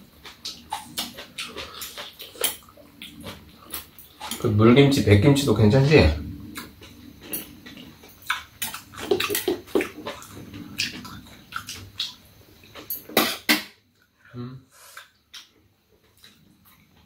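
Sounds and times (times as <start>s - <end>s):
wet chewing and slurping: 0.0s - 4.5s, 6.5s - 12.9s.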